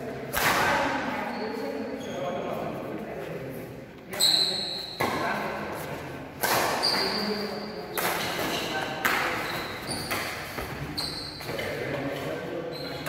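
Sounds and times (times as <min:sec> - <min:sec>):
shoes squeaking on court: 0:01.2 - 0:02.6, 0:04.1 - 0:05.4, 0:06.5 - 0:13.0.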